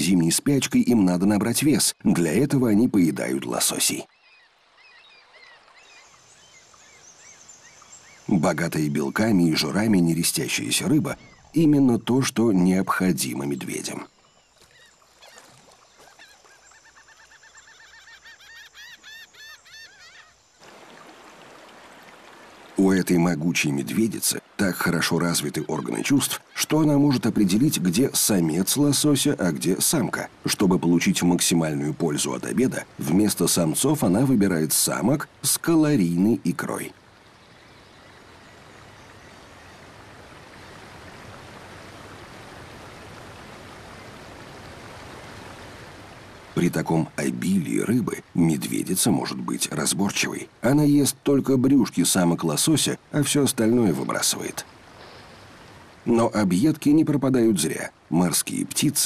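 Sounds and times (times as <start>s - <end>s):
rushing river water: 0.0s - 59.0s
bird chirping rapidly: 14.0s - 20.4s.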